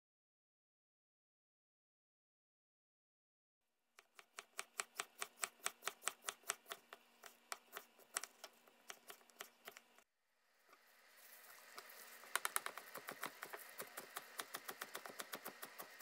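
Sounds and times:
knife chopping on cutting board: 4.0s - 10.0s, 12.3s - 16.0s.

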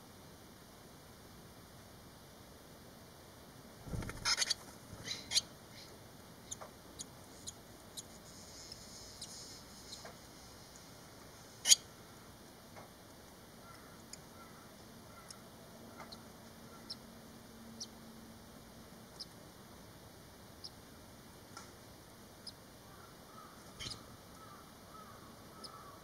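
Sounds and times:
low thump: 3.8s - 4.3s
nestlings begging calls: 3.9s - 10.1s, 11.6s - 11.9s, 13.6s - 17.0s, 22.4s - 26.0s.

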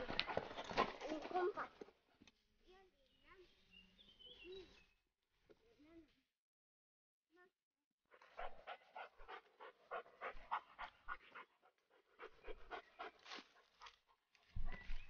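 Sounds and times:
dog panting: 8.1s - 14.2s.

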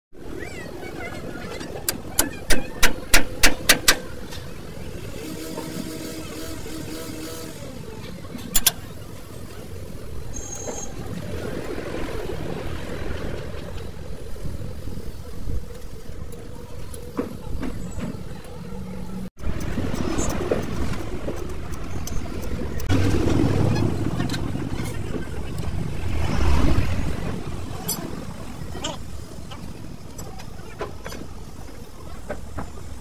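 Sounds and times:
steady low rumble: 18.7s - 29.4s.

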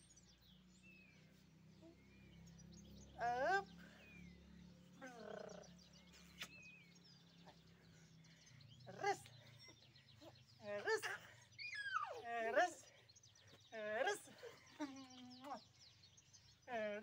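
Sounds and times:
faint birds chirping: 0.0s - 17.0s
baby squealing: 11.6s - 12.2s.

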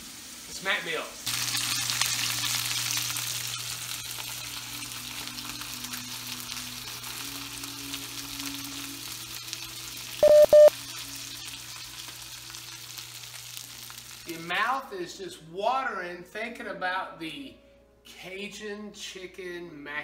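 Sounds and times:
chicken sizzling in a skillet: 0.0s - 14.9s
loud electronic beeps: 10.2s - 10.7s.

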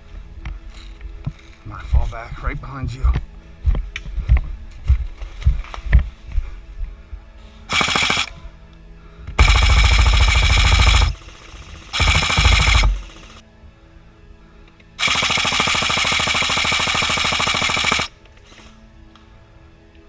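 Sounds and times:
airsoft gun firing bursts: 7.7s - 8.4s, 9.4s - 13.4s, 15.0s - 18.2s
motor whine: 9.4s - 13.4s.

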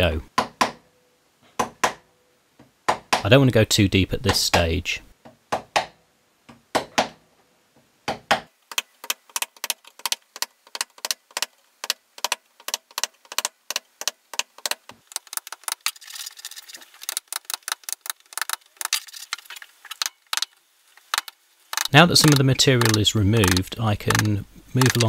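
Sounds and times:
chisel chopping into wood: 0.4s - 0.8s, 1.6s - 2.0s, 5.5s - 6.0s, 6.7s - 7.2s, 8.1s - 8.5s
chisel scraping wood chips: 12.2s - 25.0s.

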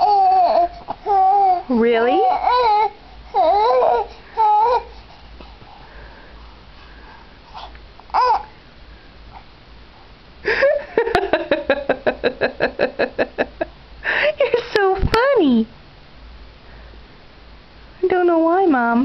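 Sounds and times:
baby babbling: 0.0s - 4.9s, 8.1s - 8.6s.

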